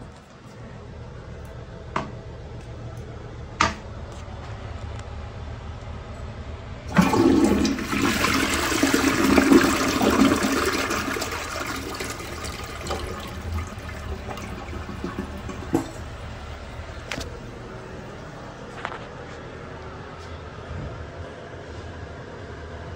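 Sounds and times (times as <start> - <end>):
toilet flushing: 6.9 - 17.3
water running: 6.9 - 17.3.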